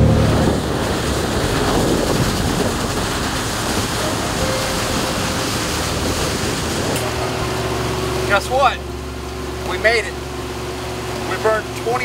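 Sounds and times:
wind on microphone: 0.0s - 8.0s
water rushing along boat hull: 0.0s - 12.0s.

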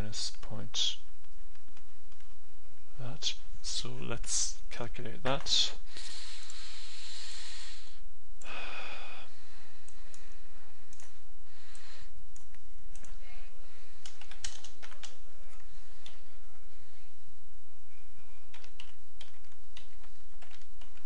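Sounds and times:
low electrical hum: 0.0s - 21.0s
computer keys and mouse clicks: 10.9s - 13.2s, 14.0s - 16.2s, 18.5s - 21.0s.

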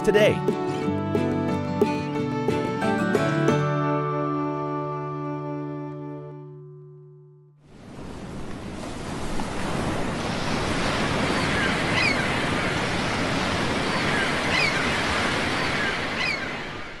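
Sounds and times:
sea waves washing onto beach: 7.7s - 17.0s.

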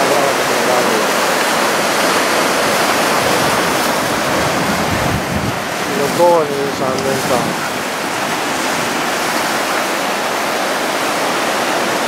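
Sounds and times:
surf washing up shore: 0.0s - 12.0s
wind on microphone: 1.6s - 10.6s.

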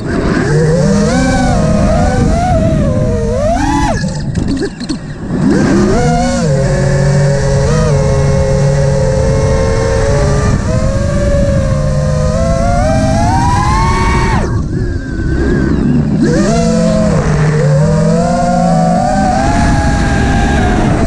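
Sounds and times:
low wind rumble: 0.0s - 21.0s
quadcopter motors whining: 0.0s - 21.0s.

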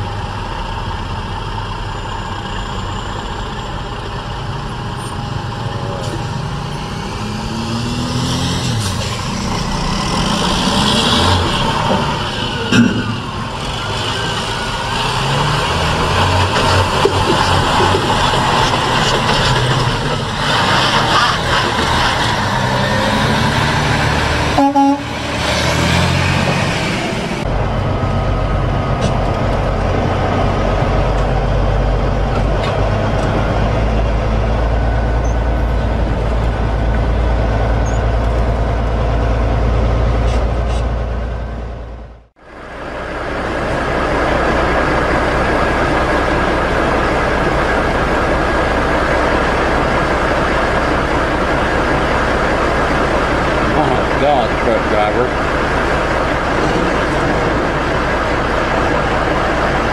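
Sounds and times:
road noise: 0.0s - 59.9s
truck diesel engine drone: 0.0s - 59.9s.

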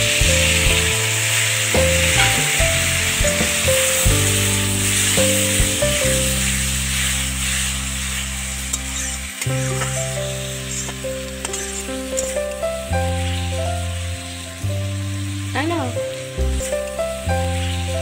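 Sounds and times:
background music with melody: 0.0s - 18.0s
tomatoes sizzling in oil: 0.0s - 18.0s
metal spatula stirring in wok: 0.2s - 12.6s.

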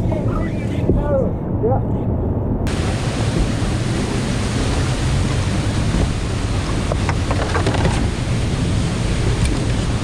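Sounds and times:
river rushing: 2.7s - 10.0s
water splashes: 2.7s - 10.0s.

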